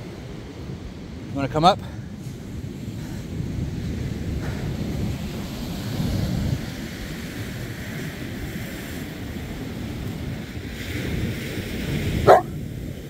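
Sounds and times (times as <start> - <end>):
surf washing on beach: 0.0 - 13.0
wind buffeting microphone: 0.0 - 13.0
dog barking: 12.2 - 12.6.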